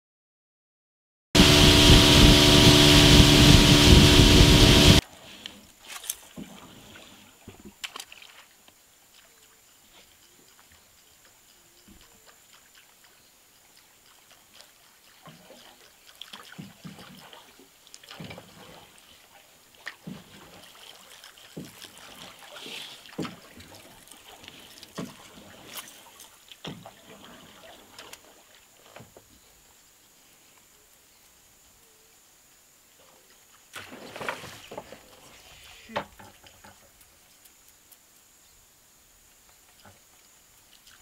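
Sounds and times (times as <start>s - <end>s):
paddle strokes splashing: 1.4s - 29.2s, 33.5s - 37.4s, 39.6s - 41.0s
water trickling: 6.3s - 28.9s.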